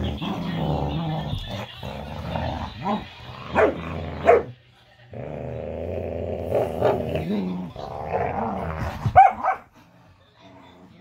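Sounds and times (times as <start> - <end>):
dog growling: 0.0 - 4.5, 5.1 - 9.1
dogs barking: 2.7 - 4.6, 9.0 - 9.8.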